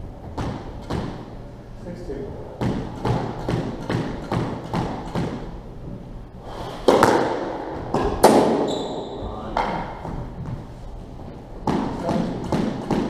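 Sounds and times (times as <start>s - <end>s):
squash ball hits echoing: 0.3s - 1.4s, 2.6s - 5.6s, 6.8s - 10.3s, 11.6s - 13.0s
hard racket strike: 0.4s - 1.3s, 2.6s - 5.5s, 6.8s - 9.0s, 11.6s - 13.0s.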